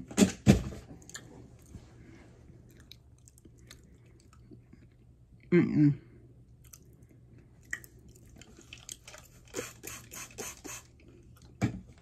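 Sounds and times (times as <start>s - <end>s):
mouth chewing clay: 1.0s - 5.5s, 6.5s - 10.0s.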